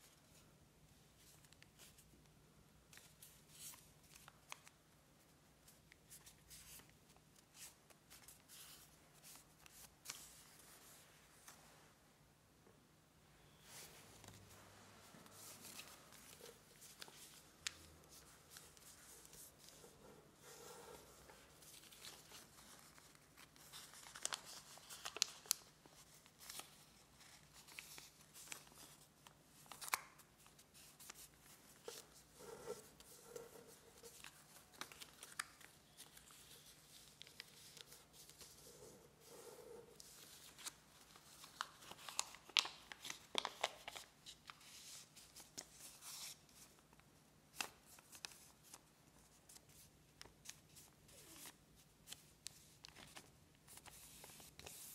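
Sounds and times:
paper rustling and crinkling: 13.7 - 54.9.

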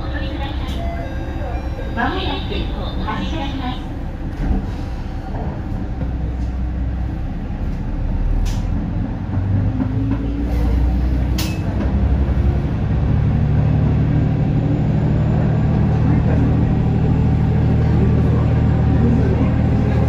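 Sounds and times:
diesel train engine revving: 0.0 - 20.0.

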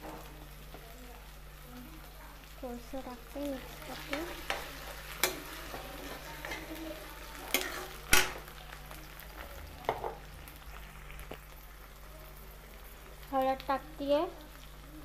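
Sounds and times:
vegetables sizzling in oil: 0.0 - 15.0
spatula stirring and scraping: 3.5 - 10.2.

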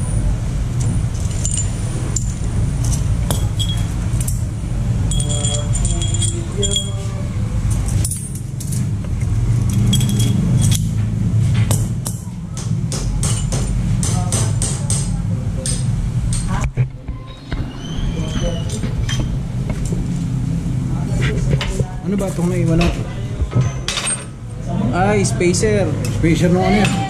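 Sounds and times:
metal parts and tools clinking: 0.8 - 8.9, 9.5 - 11.1, 13.2 - 13.8, 23.6 - 24.4.

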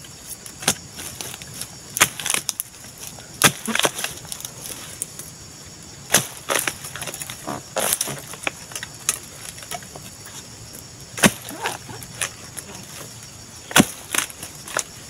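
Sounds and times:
tool chopping palm stalk: 1.9 - 2.6, 3.4 - 4.3, 6.1 - 8.6, 11.2 - 12.4, 13.7 - 15.0.

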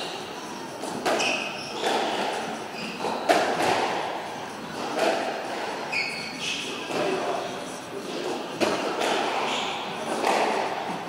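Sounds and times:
shoes squeaking on court floor: 0.8 - 3.7, 5.8 - 7.2, 8.0 - 10.3.

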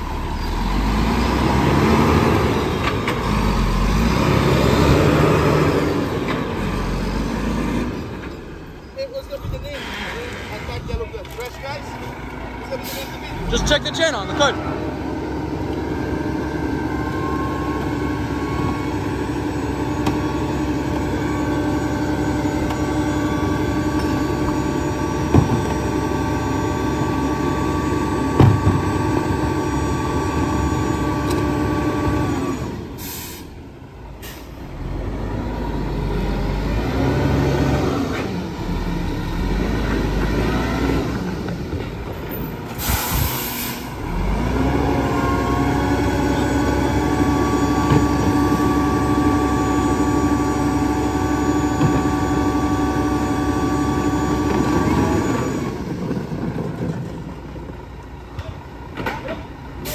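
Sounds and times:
garbage truck hydraulics whining: 11.8 - 57.5
air hissing: 42.8 - 43.9.

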